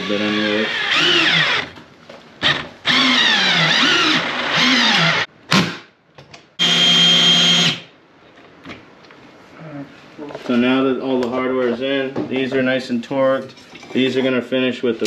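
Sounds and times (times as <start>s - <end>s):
cordless drill motor whine: 0.0s - 1.7s, 2.4s - 5.3s, 6.6s - 7.8s.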